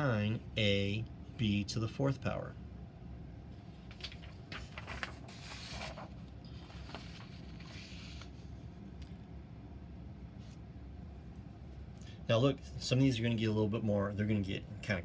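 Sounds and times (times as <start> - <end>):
paper rustling: 3.8 - 8.4
paper sliding across desk: 4.2 - 8.4.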